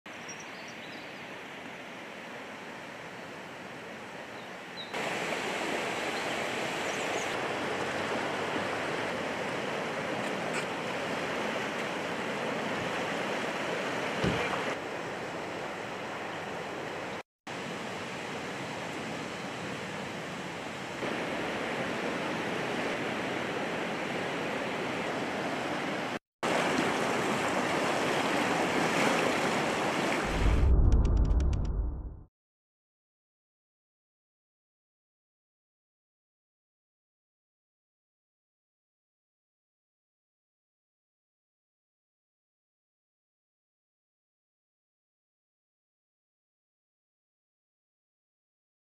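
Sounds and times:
river rushing in flood: 0:01.3 - 0:30.3.

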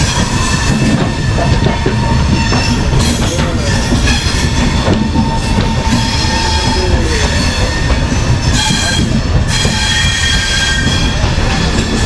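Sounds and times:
high-pitched wheel squeal: 0:00.0 - 0:12.0
train rumbling on rails: 0:00.0 - 0:12.0.

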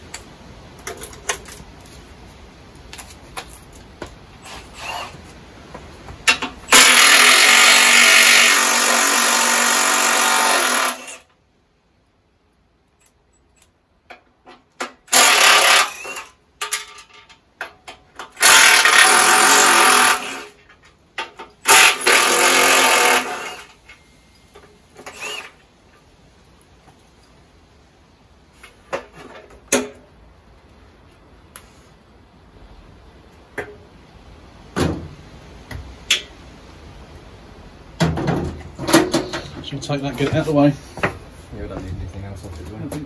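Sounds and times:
cordless power tool running: 0:18.4 - 0:20.5.

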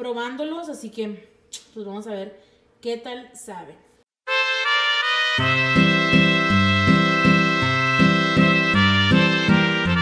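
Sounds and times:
bright melody: 0:04.3 - 0:10.0.

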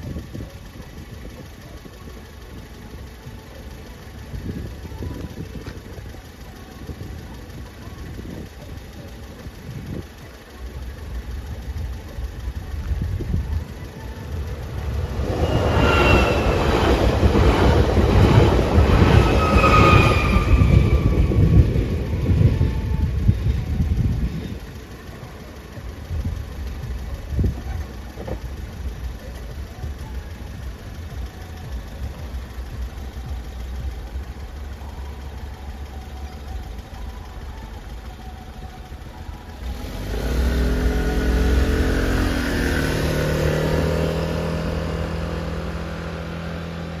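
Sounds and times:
motor scooter: 0:00.0 - 0:47.0
road traffic engines: 0:00.0 - 0:47.0
train rumbling past: 0:11.1 - 0:27.0.

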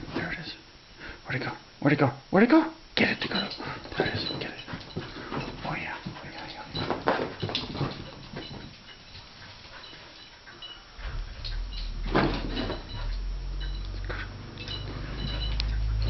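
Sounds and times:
dog paws scrambling on carpet: 0:03.2 - 0:16.0.

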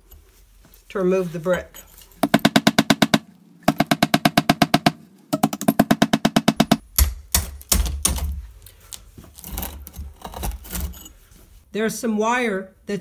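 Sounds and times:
hammer striking steel chisel: 0:02.2 - 0:08.4.

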